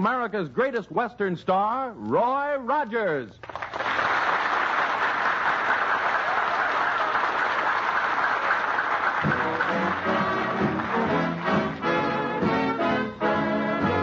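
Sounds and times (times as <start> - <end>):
audience applauding: 3.4 - 12.4
band playing: 9.0 - 14.0.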